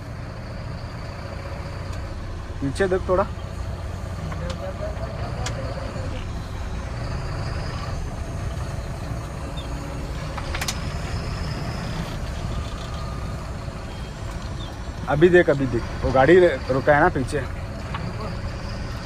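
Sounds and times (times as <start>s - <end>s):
truck engine running: 0.0s - 19.0s.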